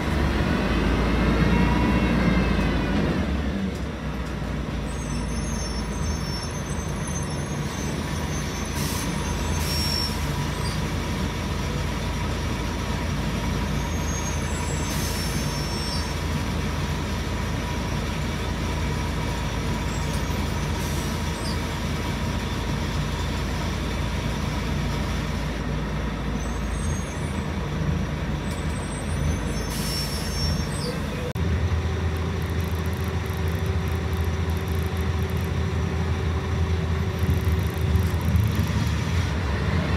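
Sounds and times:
bus diesel engine running: 0:00.0 - 0:39.9
short air hisses: 0:14.8 - 0:15.7, 0:29.5 - 0:30.8.

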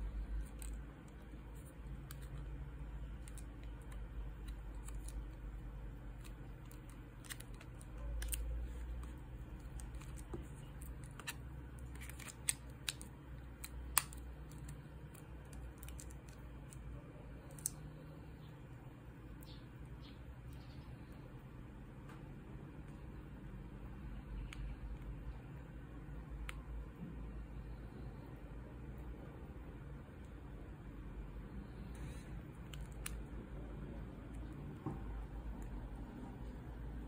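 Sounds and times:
low steady hum: 0:00.0 - 0:37.0
smartphone parts clicking and tapping: 0:06.1 - 0:16.8.

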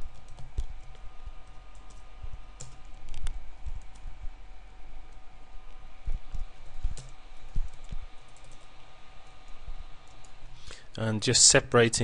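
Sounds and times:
computer keyboard typing: 0:00.0 - 0:04.1, 0:06.9 - 0:10.4
faint electrical hum: 0:00.0 - 0:12.0.

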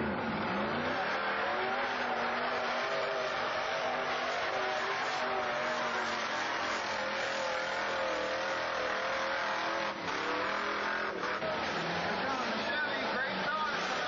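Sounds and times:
outdoor noise: 0:00.0 - 0:14.0
off-road vehicle engine running: 0:04.6 - 0:14.0.

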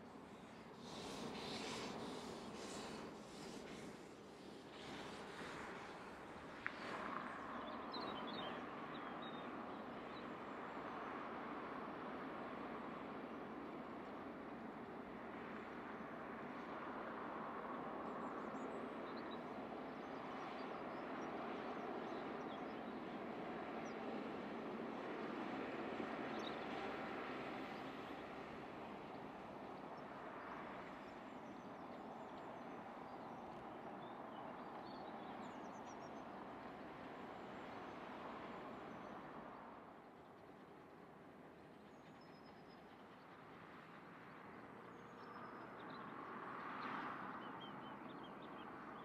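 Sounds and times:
distant steam train rushing: 0:00.0 - 0:07.0.

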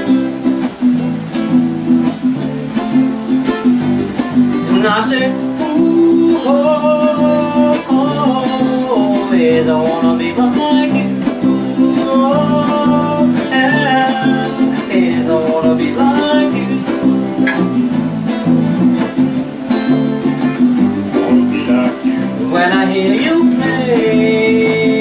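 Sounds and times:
acoustic guitar strumming: 0:00.0 - 0:25.0
man scat singing: 0:21.1 - 0:25.0.

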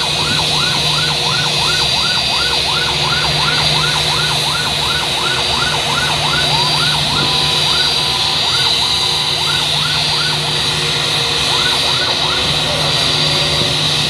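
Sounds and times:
fire truck siren wailing: 0:00.0 - 0:14.0
low drone: 0:00.0 - 0:14.0
steady high whine: 0:00.0 - 0:14.0.

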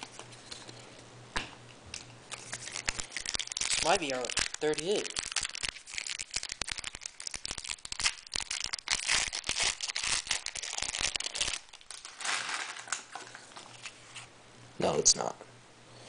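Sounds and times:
foil wrapper tearing and crinkling: 0:02.3 - 0:14.0.

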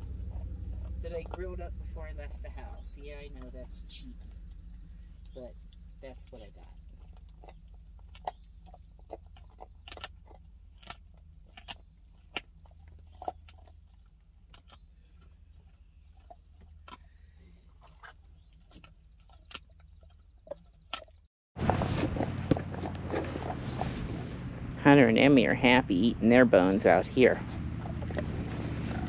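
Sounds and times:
dogs gnawing bones: 0:00.0 - 0:23.9
faint low hum: 0:00.0 - 0:29.0.

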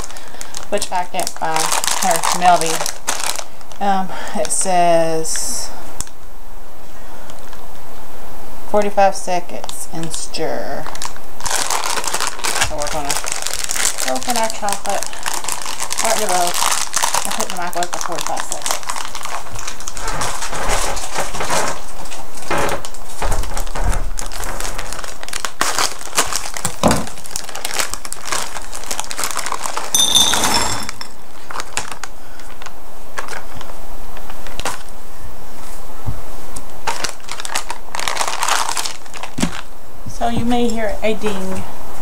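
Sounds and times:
plastic bag crinkling: 0:00.0 - 0:03.8, 0:10.8 - 0:21.6, 0:23.5 - 0:32.6, 0:36.8 - 0:39.7.

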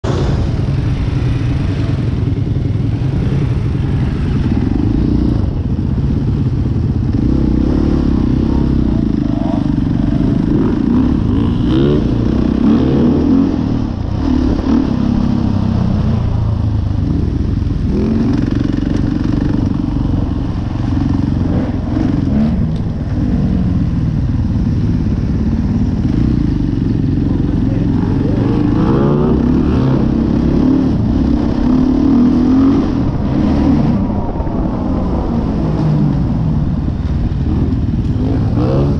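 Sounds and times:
dirt bike engine revving: 0:02.7 - 0:16.3, 0:25.8 - 0:36.2, 0:36.8 - 0:38.9.

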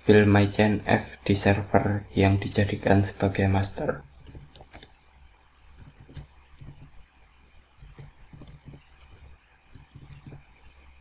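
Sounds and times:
faint keyboard keys clicking: 0:04.2 - 0:05.0, 0:05.7 - 0:07.0, 0:07.8 - 0:10.5.

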